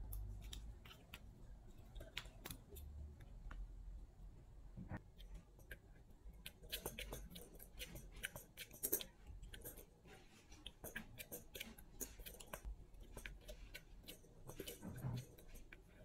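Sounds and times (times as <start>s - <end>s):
cat toy clicking and rattling: 5.2s - 10.0s, 10.6s - 16.0s.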